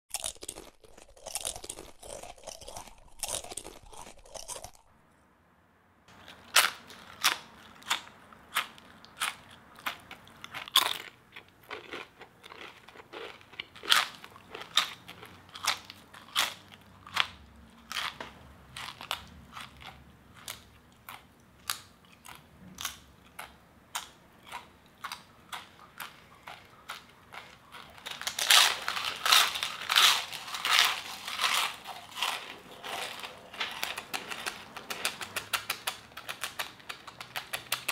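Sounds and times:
chips being crunched: 0:27.9 - 0:37.9.

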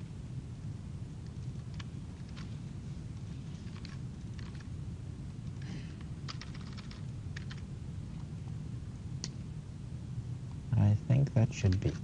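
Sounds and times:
steady low hum: 0:00.0 - 0:12.0
computer keyboard key clicks: 0:03.7 - 0:04.6, 0:06.3 - 0:07.6.

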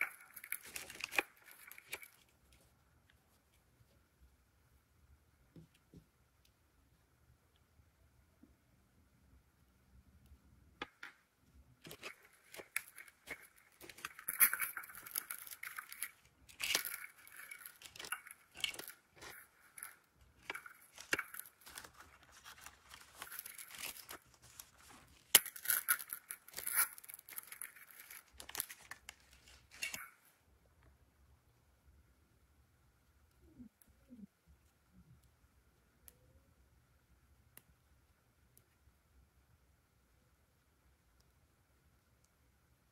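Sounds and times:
wrappers crinkling and tearing: 0:00.0 - 0:02.3, 0:11.8 - 0:30.2.

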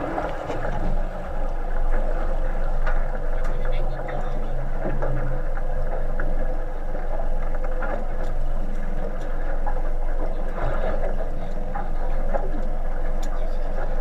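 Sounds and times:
boat engine humming: 0:00.0 - 0:14.0
sea noise: 0:00.0 - 0:14.0.

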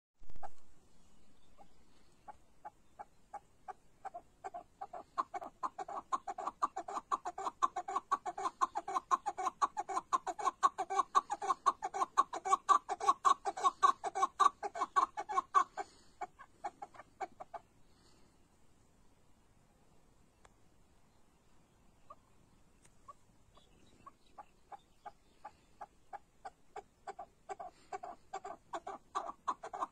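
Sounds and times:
partridge clucking calls: 0:00.3 - 0:18.2, 0:22.0 - 0:29.9.

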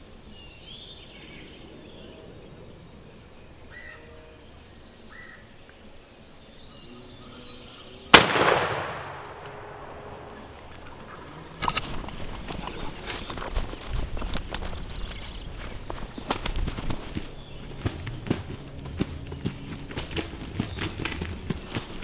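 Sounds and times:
songbirds chirping: 0:00.0 - 0:22.0
shotgun blast echoing: 0:08.1 - 0:10.7
footsteps through leaves: 0:11.9 - 0:22.0.

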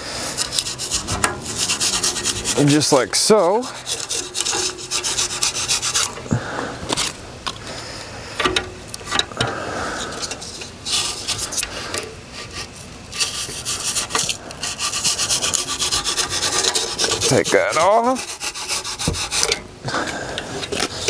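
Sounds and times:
knife rasping through foam: 0:00.0 - 0:06.2, 0:12.4 - 0:19.6.

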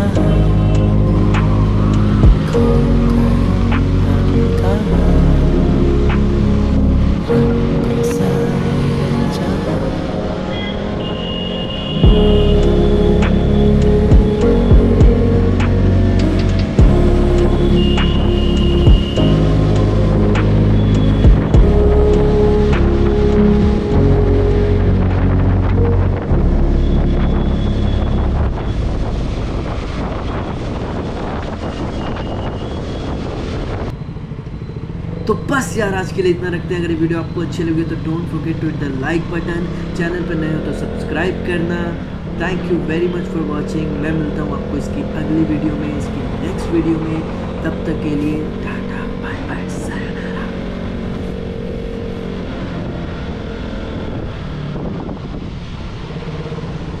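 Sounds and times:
wind rushing over microphone: 0:00.0 - 0:57.0
motorcycle engine running: 0:12.0 - 0:22.5.

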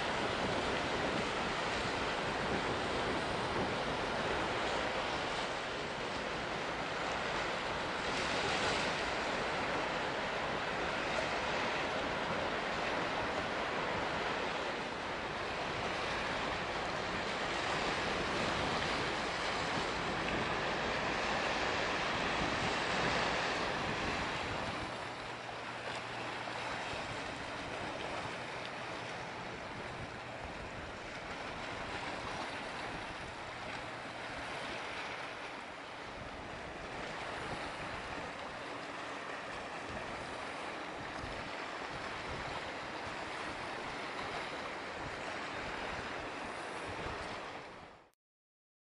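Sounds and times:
strong wind on microphone: 0:00.0 - 0:25.5, 0:36.0 - 0:48.0.

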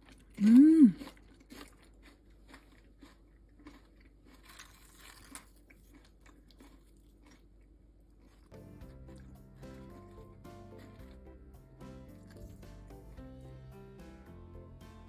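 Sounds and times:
tortilla chips crackling: 0:00.0 - 0:08.6.

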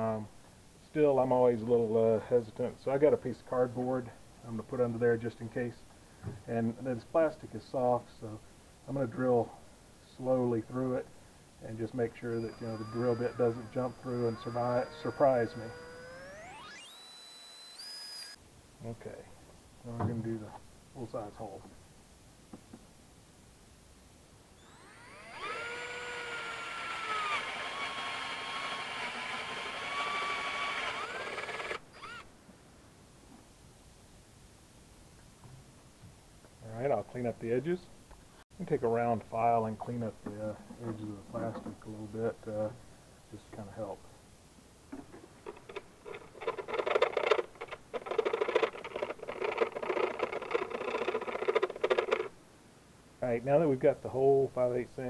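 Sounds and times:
cordless drill whining: 0:12.2 - 0:18.4, 0:24.6 - 0:32.3, 0:45.5 - 0:52.3
file scraping plastic: 0:45.4 - 0:52.3.

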